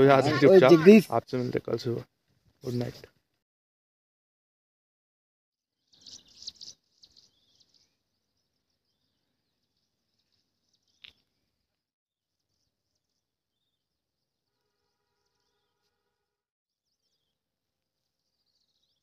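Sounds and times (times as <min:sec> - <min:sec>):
birds chirping: 0:00.0 - 0:01.9, 0:05.9 - 0:11.5.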